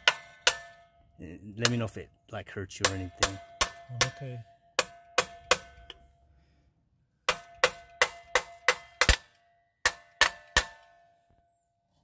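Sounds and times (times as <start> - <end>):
hammer striking metal: 0.0 - 1.0, 1.6 - 2.0, 2.8 - 6.1, 7.2 - 11.0.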